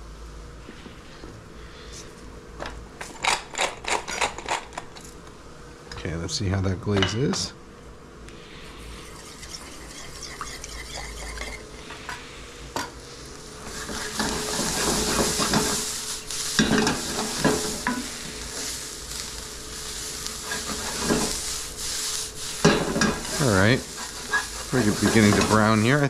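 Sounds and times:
vegetables sizzling in a skillet: 0:08.6 - 0:26.0
wooden spoon scraping a skillet: 0:13.6 - 0:26.0.

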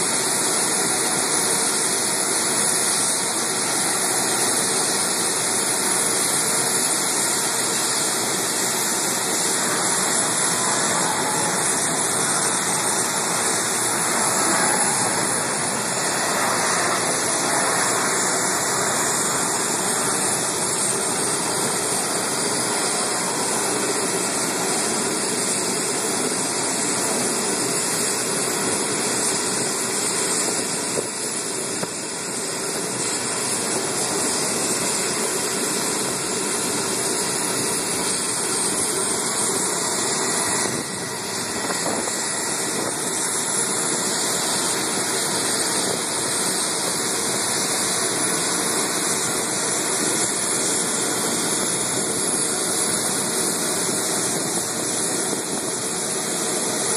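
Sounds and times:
jet engines rushing: 0:00.0 - 0:56.9
thin high whistle: 0:09.6 - 0:20.4.

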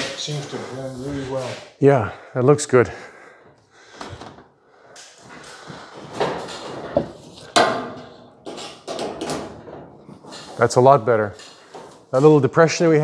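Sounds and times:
sheet metal scraping: 0:00.0 - 0:01.8
sharp knocks on metal: 0:07.6 - 0:08.0.

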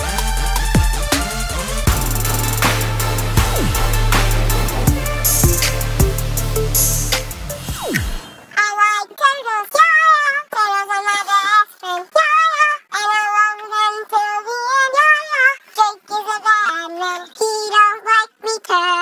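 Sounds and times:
high-pitched voice singing: 0:08.6 - 0:19.0.

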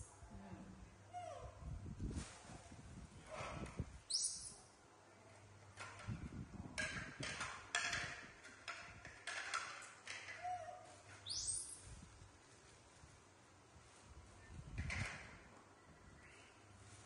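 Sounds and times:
baby monkey squeaking: 0:04.1 - 0:04.6, 0:11.2 - 0:11.8
plates clattering on tiled floor: 0:06.7 - 0:10.5.

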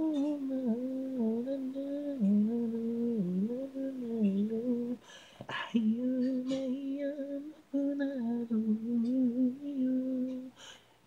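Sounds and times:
man singing unaccompanied: 0:00.0 - 0:10.6
breathy hiss: 0:04.9 - 0:05.8, 0:10.4 - 0:11.0.

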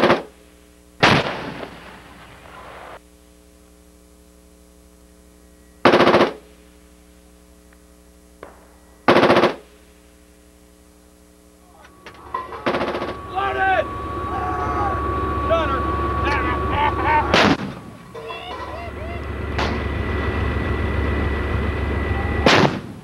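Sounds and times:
low hum: 0:00.4 - 0:23.0
machine-gun fire: 0:01.0 - 0:02.5, 0:05.9 - 0:06.4, 0:08.4 - 0:09.7, 0:17.3 - 0:18.0, 0:22.4 - 0:23.0.

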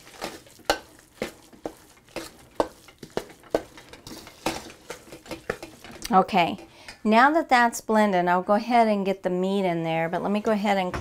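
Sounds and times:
metal spoon scraping steel bowl: 0:00.0 - 0:06.6.

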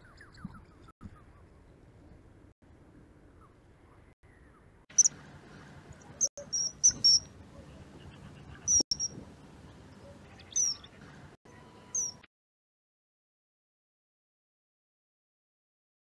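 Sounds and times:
kingfisher whistling calls: 0:06.2 - 0:07.3, 0:08.6 - 0:09.2, 0:10.4 - 0:10.9, 0:12.0 - 0:12.2.

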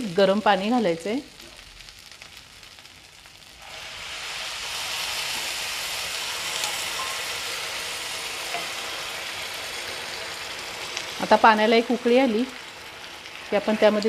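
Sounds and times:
water hissing in hot pan: 0:00.0 - 0:14.0.

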